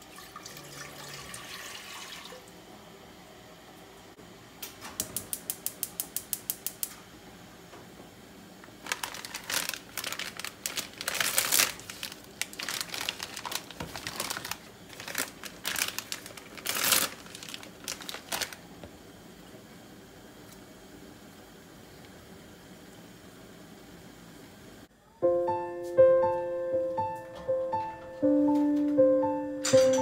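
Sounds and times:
gas hob igniter clicking: 4.6s - 7.0s
plastic wrapper crinkling: 8.7s - 18.7s.

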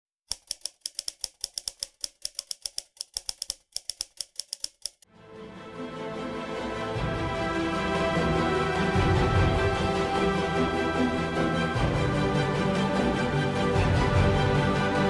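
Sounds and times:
typewriter keystroke clicks: 0.3s - 5.0s
music: 5.1s - 15.0s.

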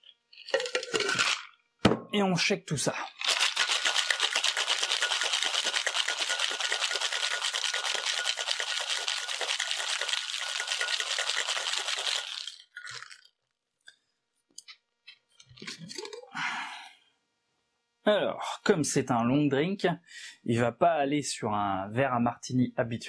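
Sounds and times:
ice rattling in cocktail shaker: 0.3s - 1.5s, 3.1s - 13.4s.

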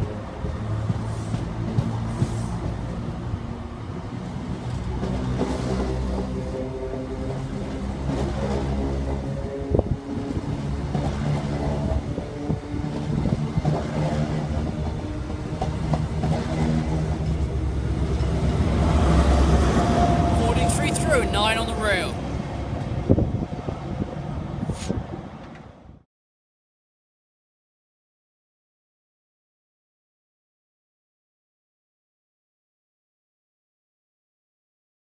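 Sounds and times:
train wheels rumbling on rails: 0.0s - 25.9s
diesel engine drone: 16.0s - 22.8s.

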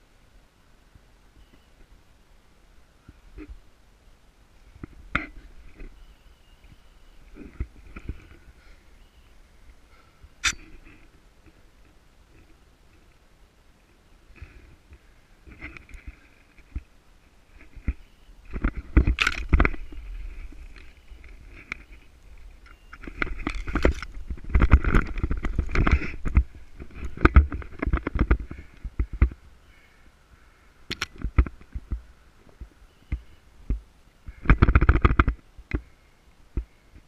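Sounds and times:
dry branches and grass rustling: 0.0s - 37.0s
microphone rubbing rumble: 4.6s - 12.6s, 14.2s - 29.8s.

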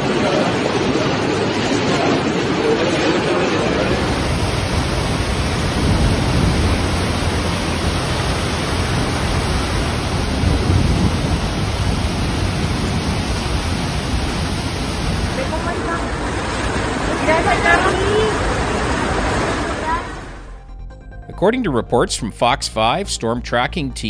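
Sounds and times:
torrential rain pouring: 0.0s - 20.3s
low thunder rumble: 3.8s - 17.7s.

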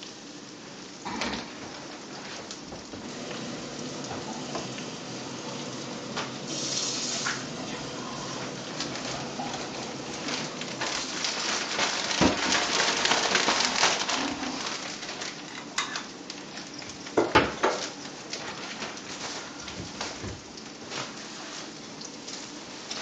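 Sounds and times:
fish frying in butter: 0.0s - 23.0s.

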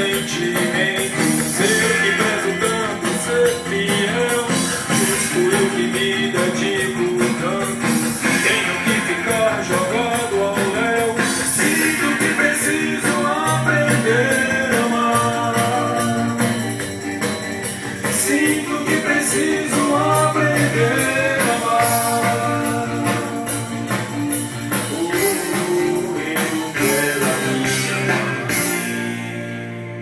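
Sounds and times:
pop-rock song from vinyl record: 0.0s - 30.0s.

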